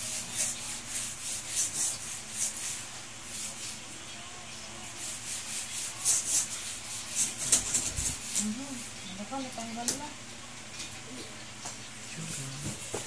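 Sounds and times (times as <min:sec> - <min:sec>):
steel wool scrubbing wet floor: 0:00.0 - 0:03.8, 0:04.8 - 0:09.4.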